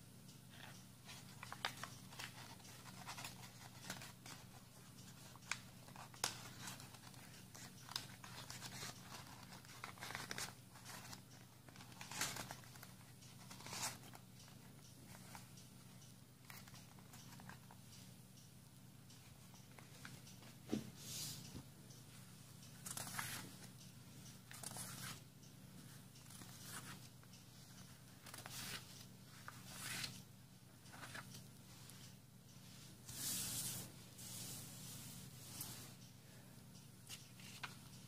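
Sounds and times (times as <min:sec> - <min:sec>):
light clicks and crackles: 0:00.3 - 0:20.6, 0:21.4 - 0:30.2, 0:30.8 - 0:34.6, 0:35.4 - 0:38.0
folded paper rustling: 0:05.2 - 0:14.2.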